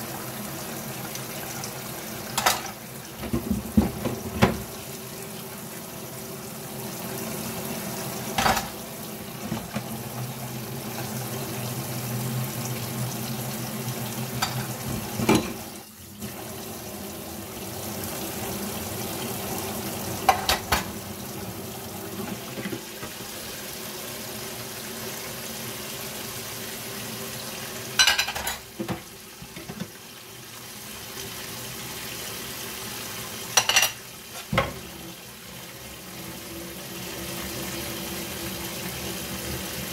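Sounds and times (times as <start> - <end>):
tap running into a sink: 2.3 - 4.8, 9.4 - 10.3, 28.2 - 30.0, 33.6 - 34.9.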